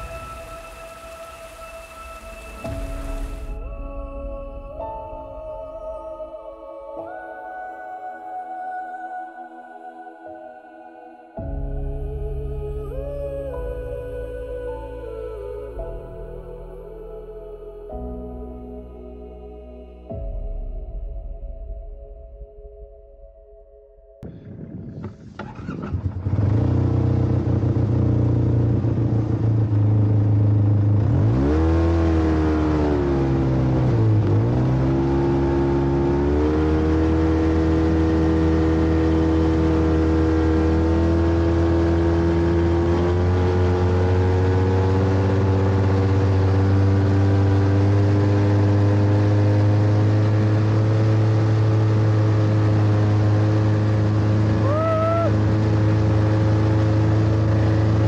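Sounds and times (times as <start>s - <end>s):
snowmobile engine running: 24.7s - 58.0s.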